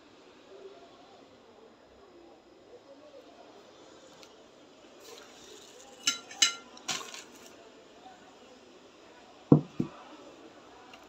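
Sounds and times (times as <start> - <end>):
metal utensil clinking on plate: 5.9 - 7.2
dull knocks: 9.5 - 9.9.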